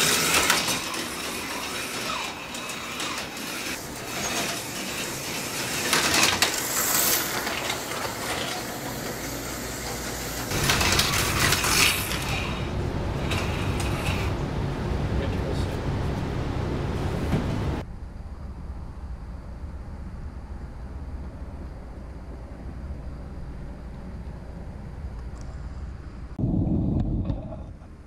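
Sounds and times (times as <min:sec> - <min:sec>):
slot cars whirring on track: 0:00.0 - 0:17.8.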